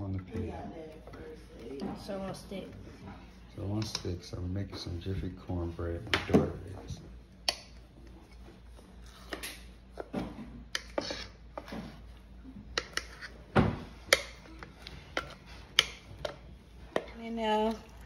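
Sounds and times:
metal spoon scraping a bowl: 10.8 - 11.7, 12.8 - 13.4.

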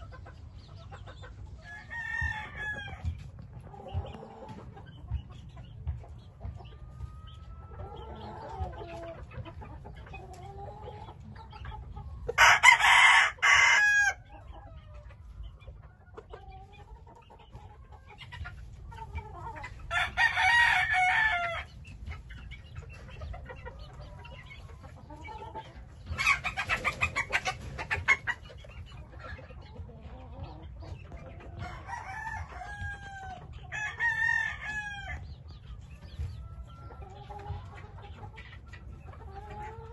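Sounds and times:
rooster crowing: 12.4 - 14.2, 19.9 - 21.6.

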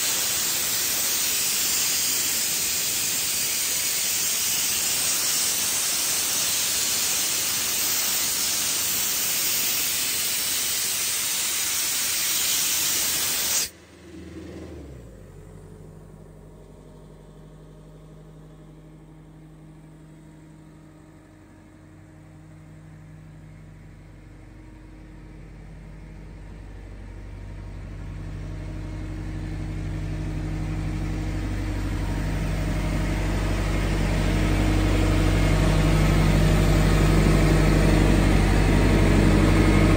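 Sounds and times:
compressed air hissing: 0.0 - 13.8
compressor diesel engine running: 0.0 - 39.9.

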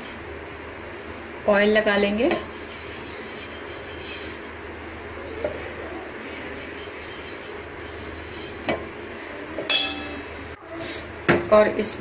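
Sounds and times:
brush spreading oil on pan: 2.4 - 4.5, 6.5 - 8.7.

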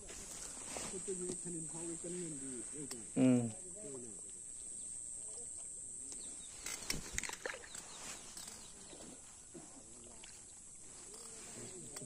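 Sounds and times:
faint distant outdoor sounds: 0.0 - 12.0
rustles and clicks of handling: 5.6 - 12.0.

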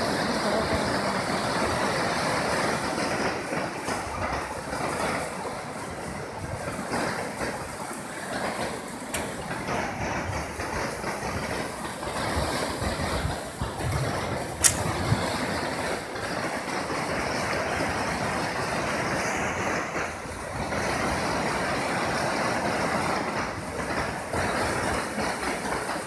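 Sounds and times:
river water rushing: 0.0 - 3.8
sharp click: 14.6 - 15.0.

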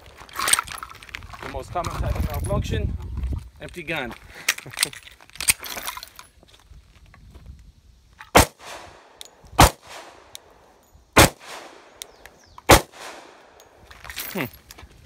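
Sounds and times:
pistol shots with echo: 8.4 - 10.3, 11.2 - 13.6.

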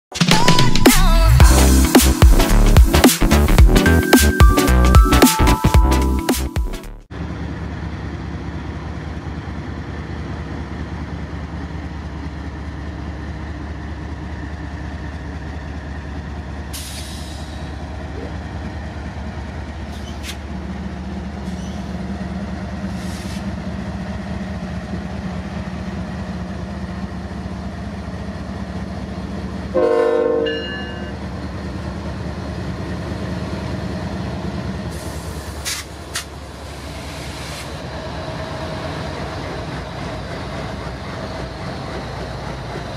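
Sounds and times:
diesel locomotive engine rumble: 1.0 - 42.9
wheel clicks and squeals: 19.8 - 20.4, 21.4 - 22.0
train horn blast: 29.7 - 31.2.

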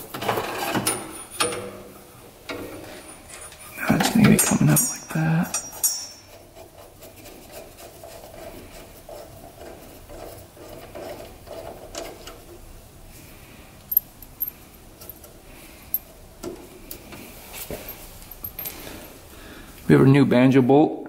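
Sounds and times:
small metal parts clicking: 13.8 - 15.3.

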